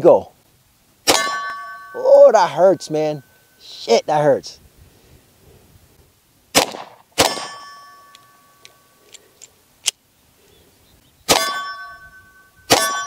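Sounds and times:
steel target ringing: 0:01.0 - 0:03.6, 0:07.2 - 0:08.6, 0:11.3 - 0:13.0
pistol shots: 0:06.5 - 0:07.6, 0:12.7 - 0:13.0.

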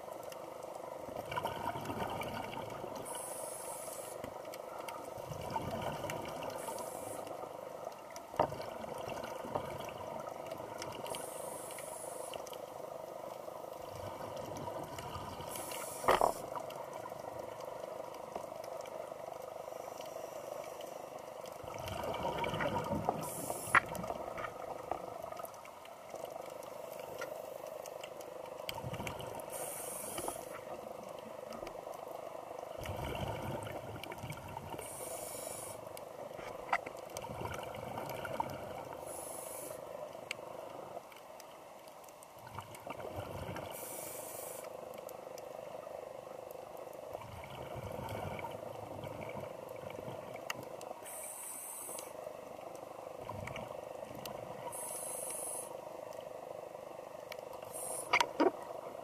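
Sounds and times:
underwater hiss: 0:01.9 - 0:07.8, 0:10.8 - 0:13.7, 0:14.9 - 0:16.6, 0:19.4 - 0:24.9, 0:28.8 - 0:30.8, 0:34.6 - 0:36.8, 0:37.4 - 0:40.9, 0:43.2 - 0:45.0, 0:50.6 - 0:52.6, 0:53.2 - 0:56.4, 0:57.5 - 0:58.5
regulator hissing on inhale: 0:03.0 - 0:04.3, 0:06.4 - 0:07.5, 0:11.0 - 0:12.6, 0:15.4 - 0:16.6, 0:19.5 - 0:21.1, 0:23.1 - 0:24.1, 0:29.4 - 0:30.7, 0:34.7 - 0:36.0, 0:38.9 - 0:40.1, 0:43.6 - 0:44.7, 0:51.0 - 0:52.3, 0:54.6 - 0:55.9, 0:57.6 - 0:58.2
exhaled bubbles rumbling: 0:21.6 - 0:25.5, 0:32.7 - 0:34.8.

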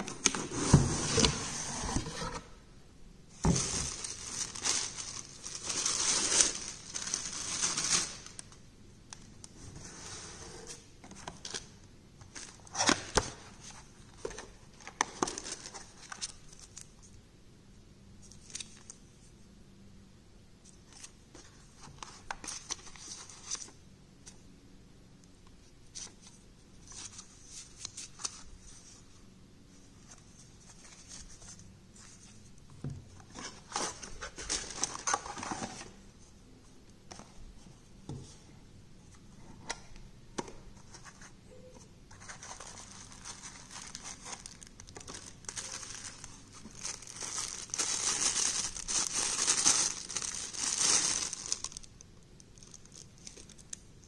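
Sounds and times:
cardboard rustling and scraping: 0:00.0 - 0:02.6
plastic bag crinkling: 0:03.6 - 0:08.5, 0:42.6 - 0:53.7.

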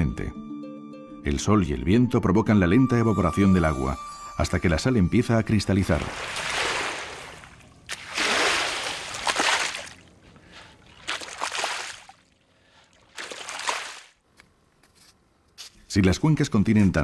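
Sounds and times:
pole splashing through water: 0:06.0 - 0:10.0, 0:10.9 - 0:12.3, 0:13.0 - 0:14.2.

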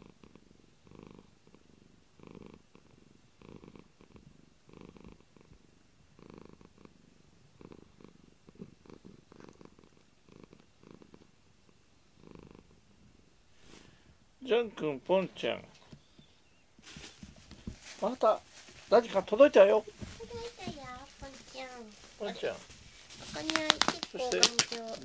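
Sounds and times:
cat purring: 0:00.0 - 0:25.0.

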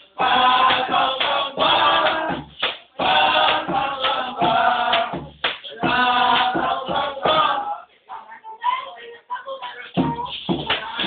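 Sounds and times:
group of voices chanting: 0:00.0 - 0:07.9.

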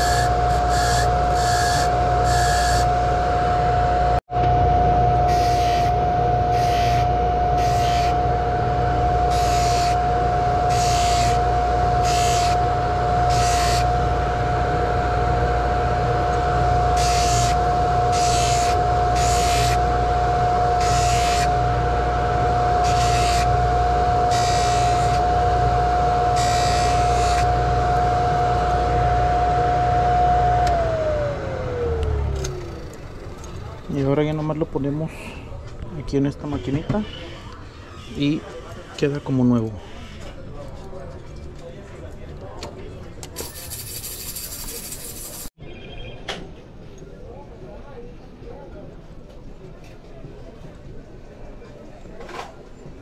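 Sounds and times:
polishing motor whining: 0:00.0 - 0:34.4
hiss of metal on buffing wheel: 0:43.4 - 0:45.5.

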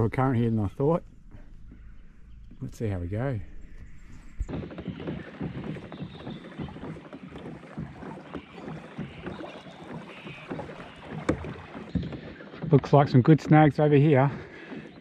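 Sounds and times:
water splashing against kayak hull: 0:03.5 - 0:15.0.

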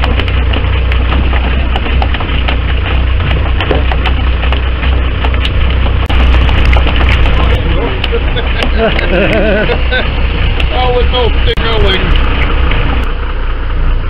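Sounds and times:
crackling clicks: 0:00.0 - 0:10.8
boat noise: 0:00.0 - 0:14.0.

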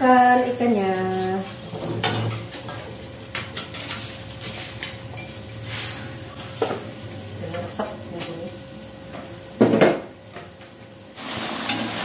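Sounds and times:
faint sizzle: 0:00.0 - 0:12.0
metal utensils scraping a wok: 0:03.5 - 0:06.1.

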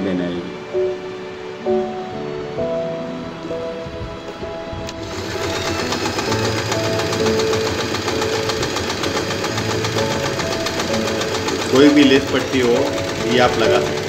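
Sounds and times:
electric sewing machine running: 0:04.9 - 0:14.0.

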